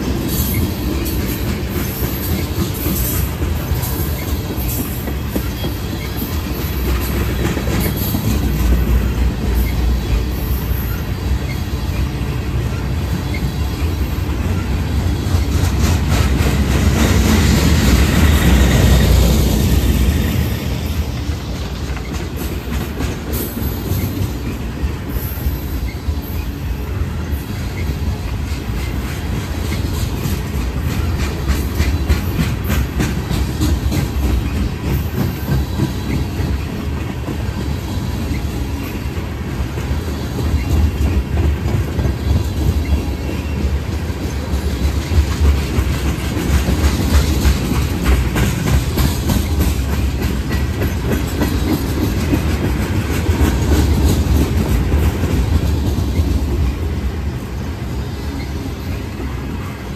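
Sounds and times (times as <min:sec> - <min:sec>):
steel wheels clicking over rail joints: 0:00.0 - 0:12.2, 0:27.3 - 0:57.0
freight train rumbling: 0:00.0 - 0:59.9.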